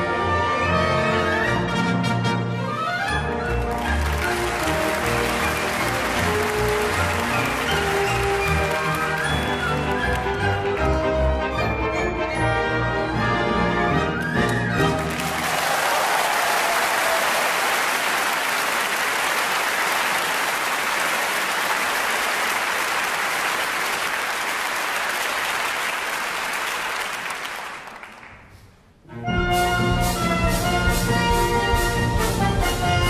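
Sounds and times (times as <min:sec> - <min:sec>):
orchestra with brass playing: 0:00.0 - 0:15.5, 0:29.0 - 0:33.0
audience applauding: 0:03.4 - 0:11.0, 0:14.2 - 0:28.5.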